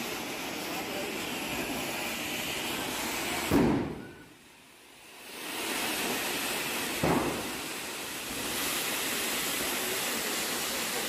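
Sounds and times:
fireworks fountain hissing: 0.0s - 11.0s
sharp loud thump: 3.5s - 4.2s, 7.0s - 7.6s.

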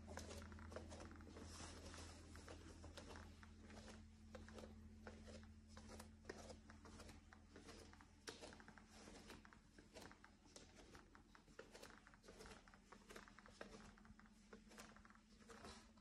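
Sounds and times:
low steady hum: 0.0s - 16.0s
plank floor creaking: 0.0s - 16.0s.

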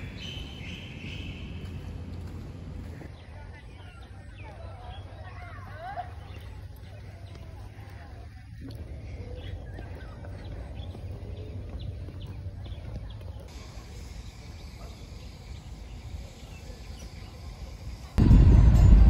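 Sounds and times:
low rumble: 18.2s - 19.0s.

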